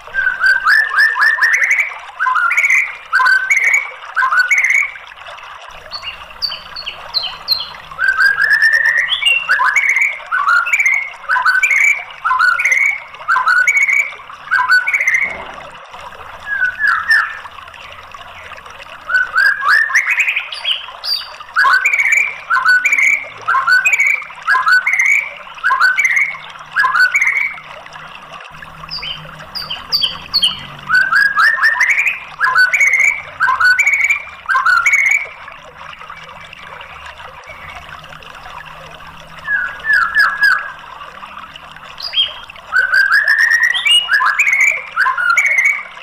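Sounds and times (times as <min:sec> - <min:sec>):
bird singing whistled notes: 0:00.1 - 0:04.9, 0:05.9 - 0:15.5, 0:16.4 - 0:17.4, 0:19.0 - 0:27.6, 0:28.9 - 0:35.3, 0:39.4 - 0:40.8, 0:42.0 - 0:45.9.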